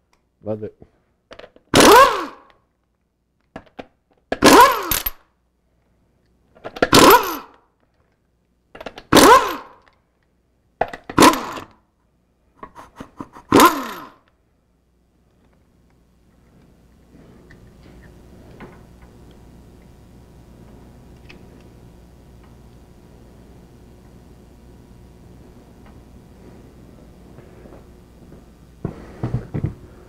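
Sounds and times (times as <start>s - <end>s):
pneumatic impact wrench bursts: 1.7s - 2.5s, 4.4s - 5.2s, 6.8s - 7.6s, 9.0s - 9.8s, 11.1s - 11.7s, 13.5s - 14.2s.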